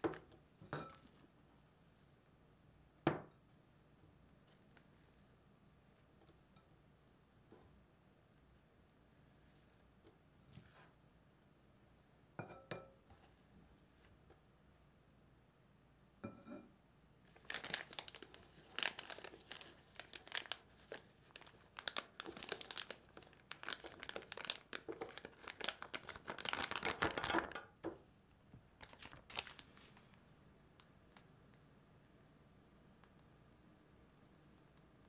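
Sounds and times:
plastic piping bag crinkling: 0:17.3 - 0:27.8, 0:28.7 - 0:30.2.

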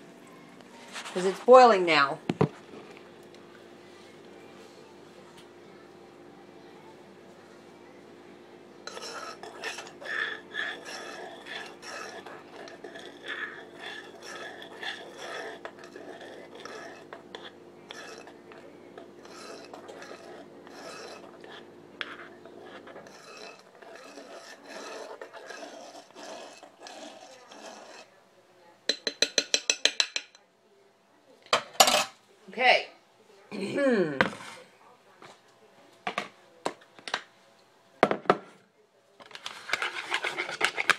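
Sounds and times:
spoon scraping inside saucepan: 0:08.8 - 0:28.2, 0:39.3 - 0:40.9.

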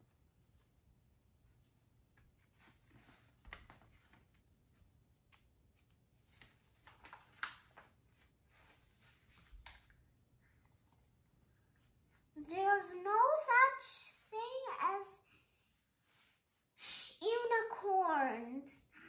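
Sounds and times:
book pages turning: 0:02.1 - 0:10.0.

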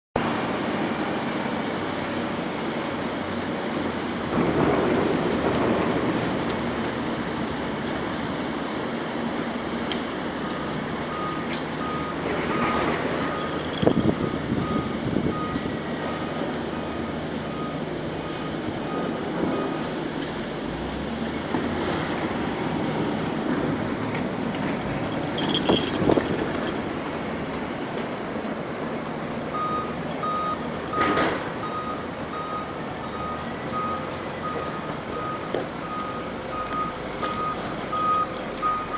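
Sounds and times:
machinery rumbling: 0:00.2 - 0:38.9
working yard din: 0:00.2 - 0:38.9
reversing alarm beeping: 0:10.4 - 0:19.8, 0:29.5 - 0:38.9
short clatter: 0:24.6 - 0:26.8.

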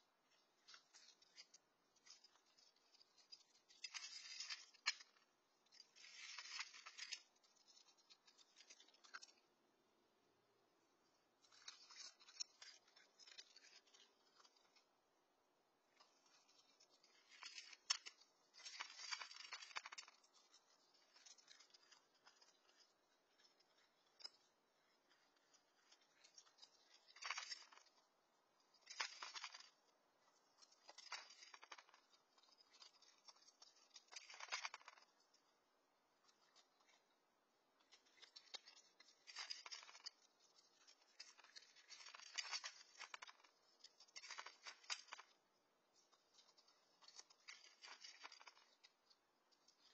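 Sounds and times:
animal crunching dry kibble: 0:30.4 - 0:35.5.

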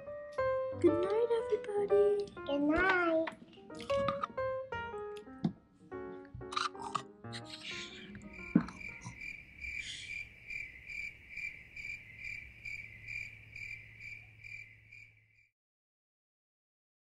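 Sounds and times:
cricket chirping: 0:07.5 - 0:15.5
thump: 0:08.4 - 0:08.8.

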